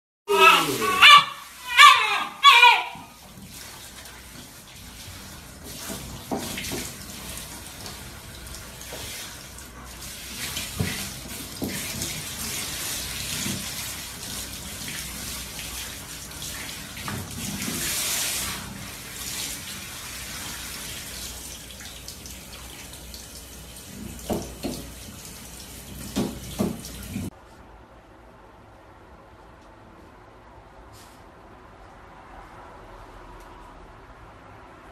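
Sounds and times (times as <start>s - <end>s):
shower water spraying: 0.3s - 27.3s.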